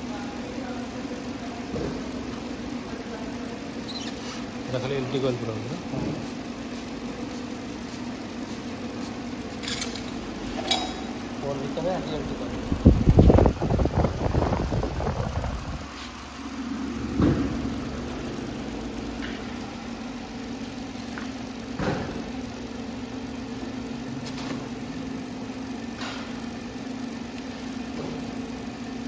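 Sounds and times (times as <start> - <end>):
electric machine hum: 0.0 - 29.0
loud low rumble: 12.2 - 15.8.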